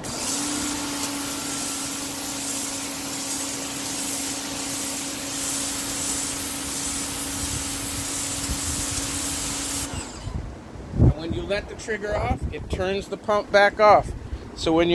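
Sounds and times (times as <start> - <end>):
water jet hissing on concrete: 0.0 - 10.4
pressure washer motor humming: 0.0 - 10.5.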